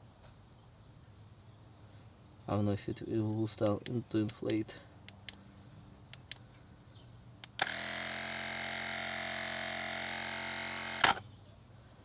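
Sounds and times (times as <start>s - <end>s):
electric air compressor running: 7.6s - 11.2s.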